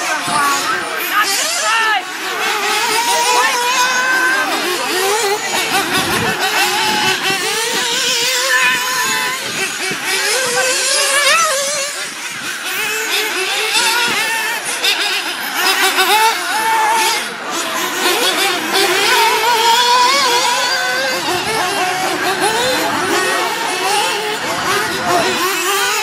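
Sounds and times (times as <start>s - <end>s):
rc car engines revving: 0.0s - 26.0s.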